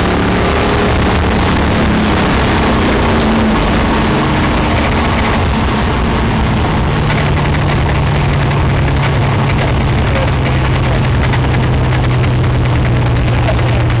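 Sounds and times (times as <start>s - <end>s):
sports car engine cruising: 0.0s - 14.0s
wind and road noise: 0.0s - 14.0s.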